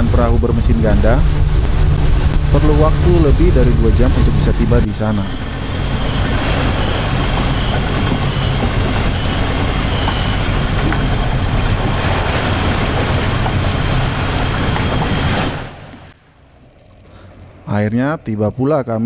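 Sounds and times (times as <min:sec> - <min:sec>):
boat engine drone: 0:00.0 - 0:18.2
rushing water: 0:01.0 - 0:16.2.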